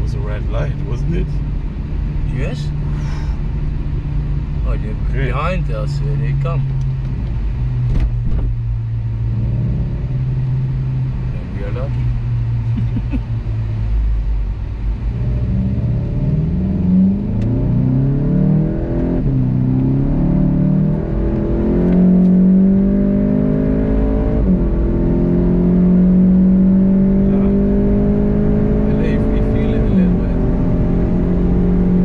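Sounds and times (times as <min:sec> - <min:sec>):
car engine accelerating hard: 0:02.1 - 0:32.0.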